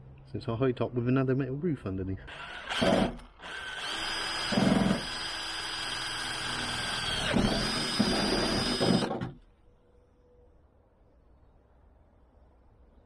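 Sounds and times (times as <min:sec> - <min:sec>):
power drill boring through metal: 0:02.3 - 0:09.4.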